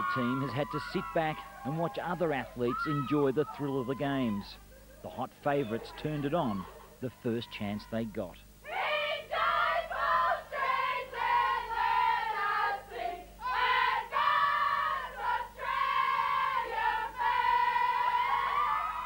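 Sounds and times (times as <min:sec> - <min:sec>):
women singing together: 0:08.6 - 0:19.0.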